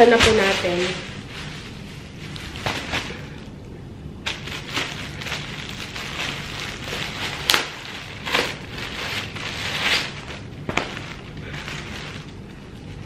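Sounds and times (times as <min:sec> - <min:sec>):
packaging and fabric crackling: 0:00.0 - 0:03.6, 0:04.2 - 0:13.0.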